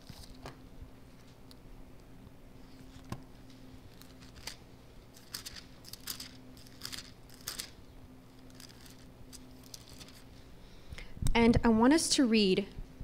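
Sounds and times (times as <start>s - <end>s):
book pages rustling: 0.0s - 0.6s, 2.6s - 4.6s, 5.2s - 7.8s, 8.4s - 10.4s.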